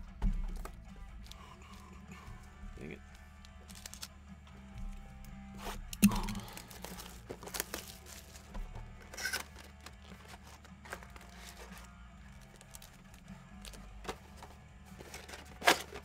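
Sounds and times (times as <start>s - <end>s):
cards being handled: 0.2s - 16.0s
card pack wrappers tearing and crinkling: 3.4s - 4.2s, 5.6s - 16.0s.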